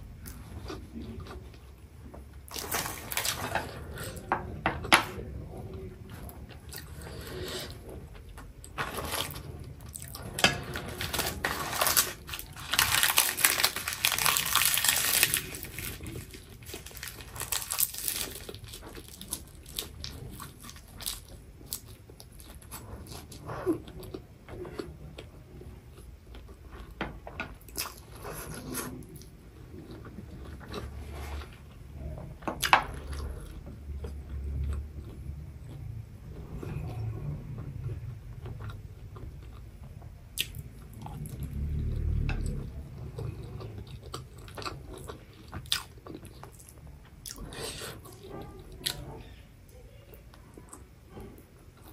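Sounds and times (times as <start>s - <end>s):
chewing crunchy food: 4.9s - 27.0s, 27.6s - 49.4s.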